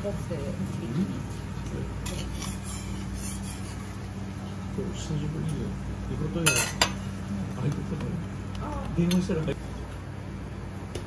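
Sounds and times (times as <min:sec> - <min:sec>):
steady low hum: 0:00.0 - 0:11.0
metal spatula clinking on griddle: 0:06.4 - 0:07.0.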